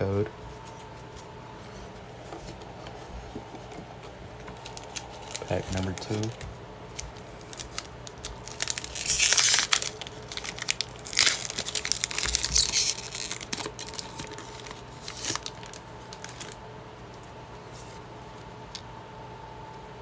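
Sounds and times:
foil rustling: 4.4s - 16.6s
foil wrapper crinkling and tearing: 4.6s - 16.6s.

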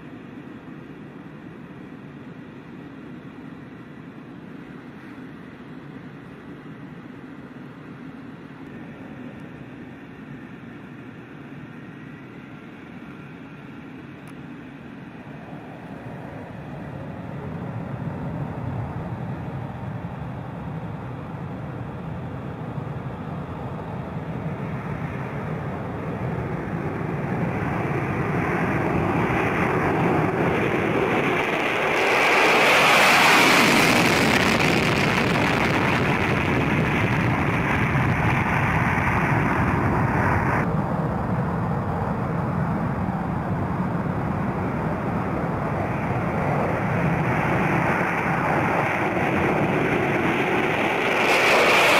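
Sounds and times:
jet engines at full power: 0.0s - 51.9s.

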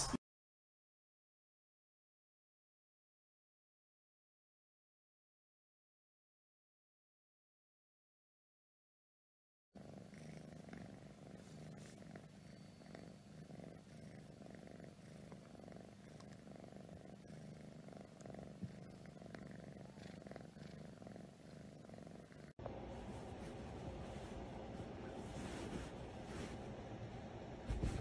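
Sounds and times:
kitten purring: 9.8s - 28.0s.

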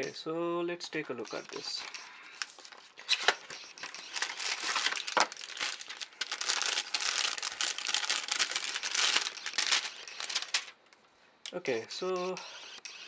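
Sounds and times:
plastic bag crinkling: 3.9s - 10.8s.

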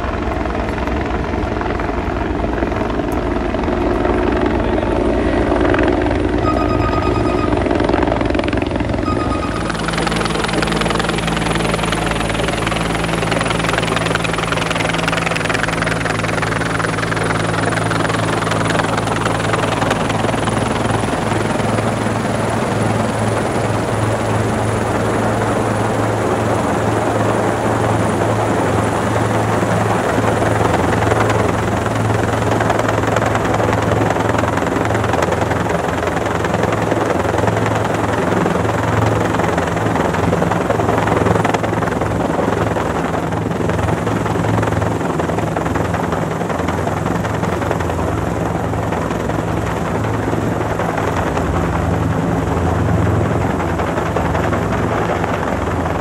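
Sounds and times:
steady low hum: 0.0s - 34.3s
helicopter rotor and turbine: 0.0s - 56.0s.

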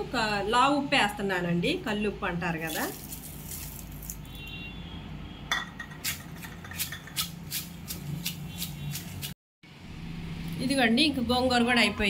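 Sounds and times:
pestle pounding in stone mortar: 5.5s - 9.3s.

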